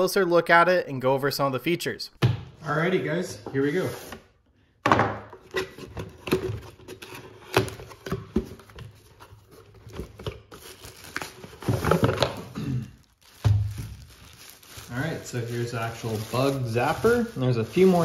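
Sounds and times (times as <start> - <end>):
plastic bag crinkling: 9.8 - 18.0.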